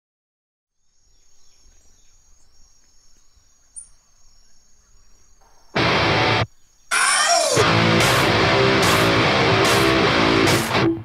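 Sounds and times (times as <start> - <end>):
bird chirps: 0.8 - 7.6
high-pitched insect drone: 6.4 - 7.8.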